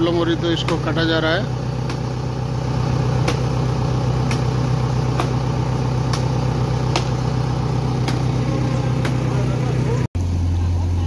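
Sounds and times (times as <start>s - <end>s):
diesel engine idling: 0.0s - 11.0s
chopping tree branch by hand: 0.6s - 1.1s, 1.8s - 2.1s, 3.2s - 3.5s, 4.2s - 4.5s, 5.1s - 5.4s, 6.1s - 7.2s, 8.0s - 8.3s.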